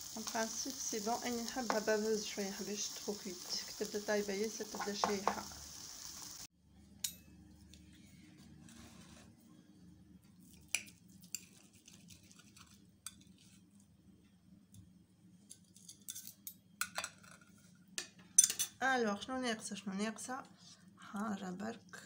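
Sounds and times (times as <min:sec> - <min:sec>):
fork clinking on ceramic plate: 0:18.4 - 0:18.8.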